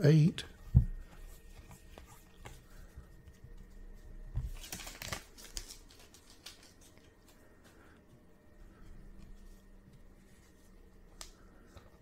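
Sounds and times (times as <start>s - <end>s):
cardboard cards rustling and clicking: 0.7s - 7.7s.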